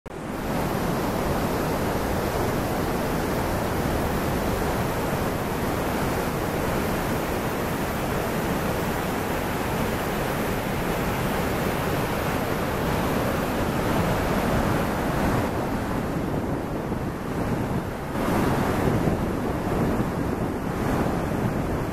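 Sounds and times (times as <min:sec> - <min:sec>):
waterfall roaring: 0:00.2 - 0:16.0.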